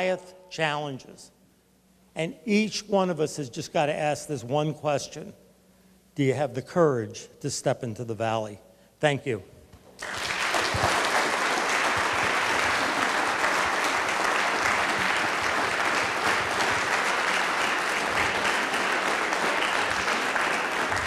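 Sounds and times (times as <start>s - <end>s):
audience applauding: 10.0s - 21.0s.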